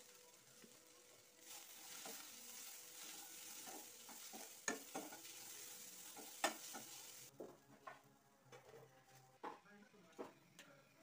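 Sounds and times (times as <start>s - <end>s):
vegetables sizzling in a pan: 0.0s - 7.3s
spatula stirring and scraping: 1.4s - 7.3s.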